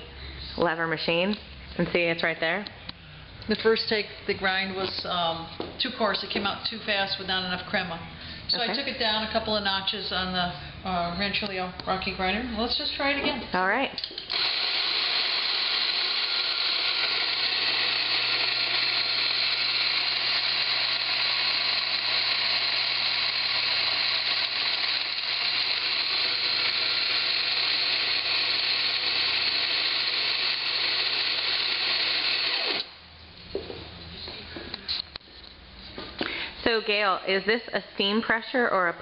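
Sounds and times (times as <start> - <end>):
coffee grinder running: 14.2 - 33.0.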